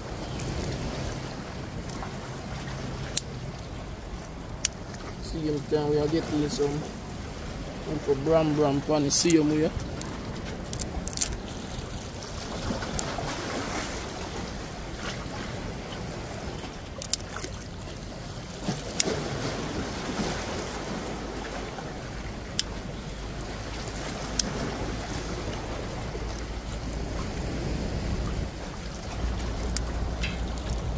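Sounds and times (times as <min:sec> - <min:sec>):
waves lapping against rocks: 0:00.0 - 0:30.9
wind buffeting microphone: 0:00.0 - 0:30.9
sticks snapping: 0:09.2 - 0:11.4, 0:16.9 - 0:17.5, 0:29.6 - 0:30.9.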